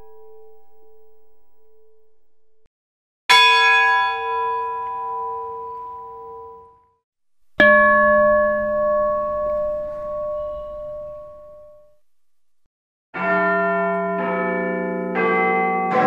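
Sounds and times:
large temple bell ringing: 0.0 - 1.4, 3.3 - 6.8, 7.6 - 11.9, 13.2 - 16.0
higher-pitched church bell ringing: 0.0 - 2.0, 3.3 - 6.9, 7.6 - 11.9, 13.2 - 16.0.

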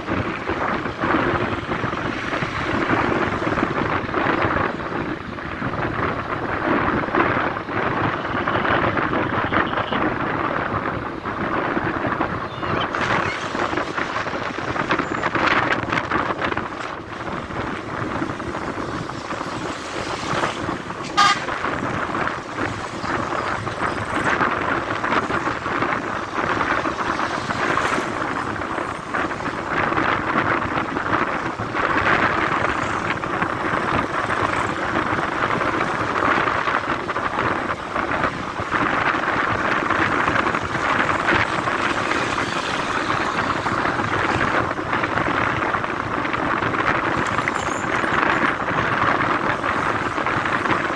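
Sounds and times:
vehicle road noise: 0.0 - 50.9
vehicle horn toot: 9.4 - 10.1, 21.0 - 21.6.

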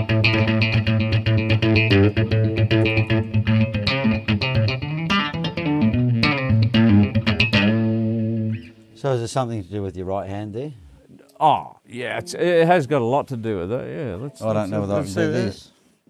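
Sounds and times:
electric guitar picked notes: 0.0 - 9.0.

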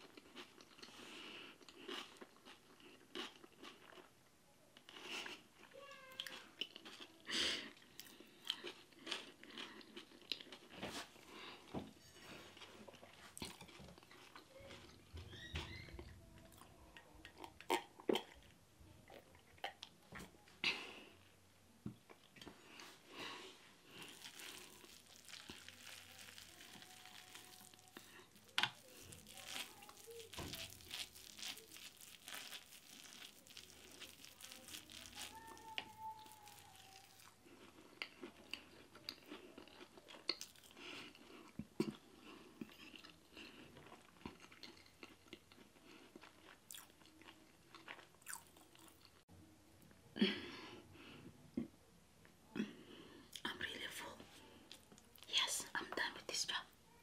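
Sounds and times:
chewing and smacking mouth sounds: 0.0 - 4.2, 4.8 - 15.4, 16.0 - 20.4, 23.9 - 49.2.

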